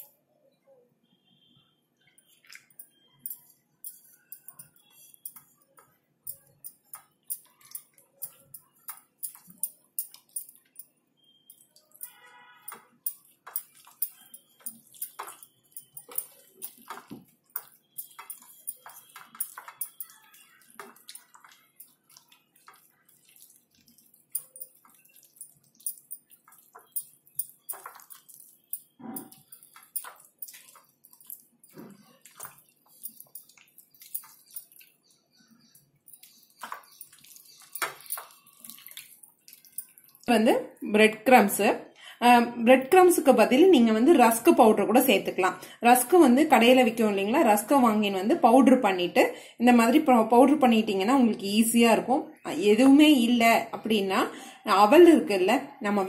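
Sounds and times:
hand mixing wet batter squelches: 2.0 - 41.6
trickle of pouring water: 11.5 - 40.3.

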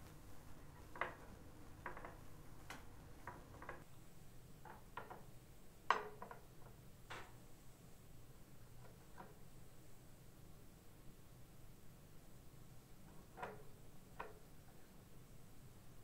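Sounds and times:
plastic sticks clicking on metal: 0.7 - 3.9, 4.6 - 5.3, 5.9 - 7.4, 13.1 - 14.8.

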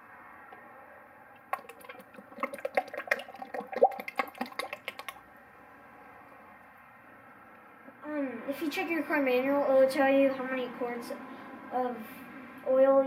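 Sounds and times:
oil glugging from a bottle: 1.4 - 5.2.

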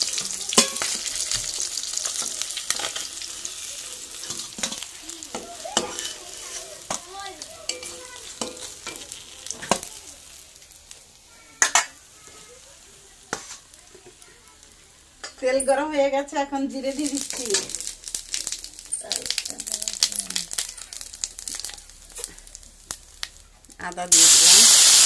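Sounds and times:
fish sizzling in oil: 0.0 - 25.0
metal spatula scraping a pan: 0.2 - 7.0, 7.7 - 9.8, 13.3 - 13.7.

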